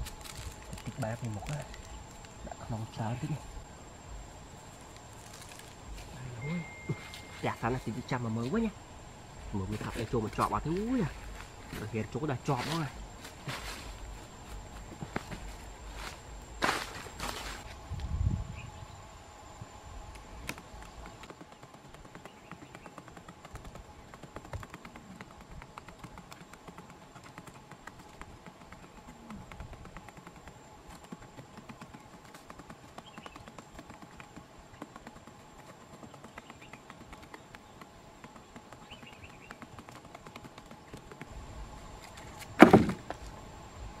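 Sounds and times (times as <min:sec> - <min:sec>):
soft chirps: 0:05.3 - 0:08.8.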